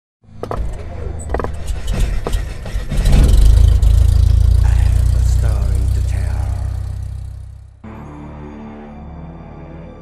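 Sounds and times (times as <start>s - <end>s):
deep rumble: 0.8s - 7.8s
sharp hits: 1.8s - 7.8s.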